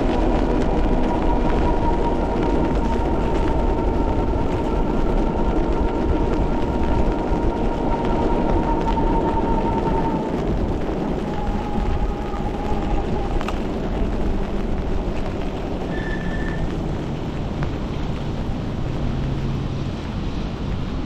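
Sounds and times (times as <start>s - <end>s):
tyres hissing on wet road: 0.0s - 21.0s
wind buffeting microphone: 0.0s - 21.0s.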